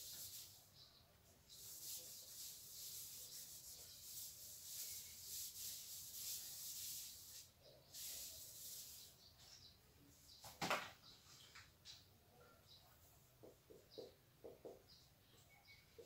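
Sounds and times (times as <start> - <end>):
eraser wiping a whiteboard: 0.0 - 0.6, 1.5 - 9.2.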